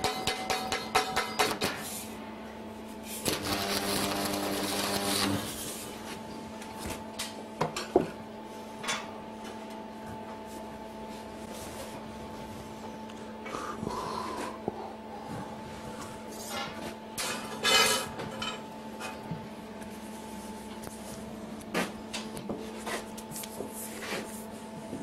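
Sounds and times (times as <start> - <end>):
arc welding crackling and buzzing: 0.0 - 2.2, 2.8 - 7.4
steady low hum: 0.0 - 25.0.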